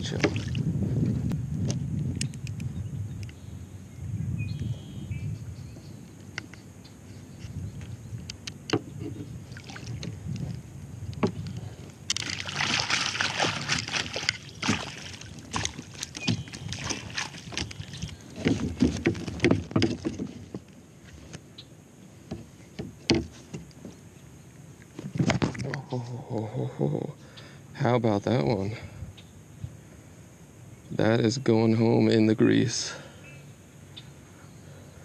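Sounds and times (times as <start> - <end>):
water splashing: 0.0 - 0.7, 9.4 - 10.2, 12.1 - 20.6
net frame knocking on hull: 12.2 - 20.6, 22.3 - 23.6.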